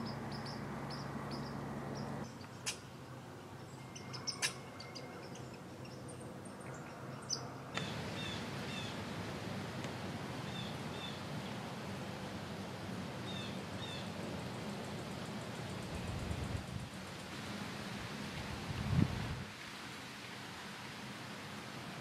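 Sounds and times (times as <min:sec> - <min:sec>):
bird chirping: 0:00.0 - 0:02.8, 0:03.6 - 0:09.0
steady background hiss: 0:00.0 - 0:22.0.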